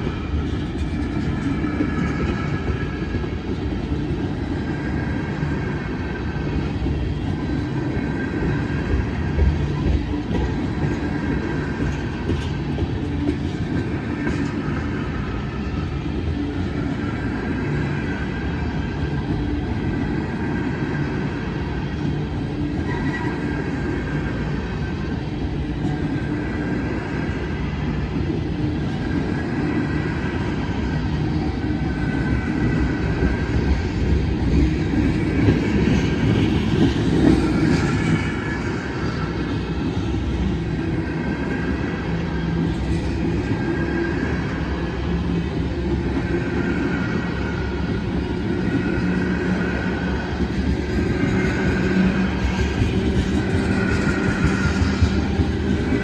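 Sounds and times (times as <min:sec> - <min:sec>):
train wheels rumbling on rails: 0:00.0 - 0:56.0
faint high wheel squeals: 0:22.6 - 0:24.2.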